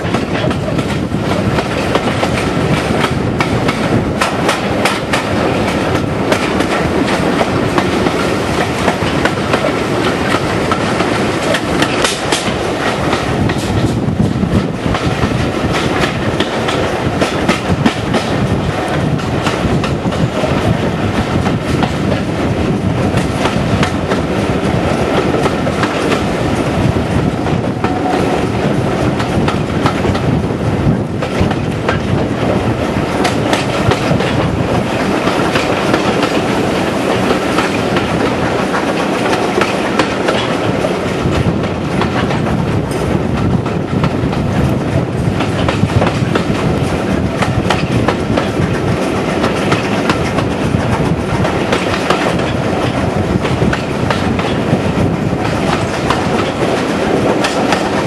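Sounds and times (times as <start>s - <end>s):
rumble of coaches on track: 0.0s - 58.0s
train wheels clicking over rail joints: 0.0s - 58.0s.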